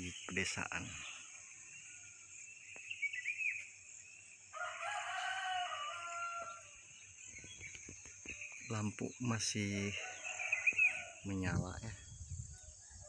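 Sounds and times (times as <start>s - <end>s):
rooster crowing: 4.5s - 6.8s, 9.9s - 11.3s.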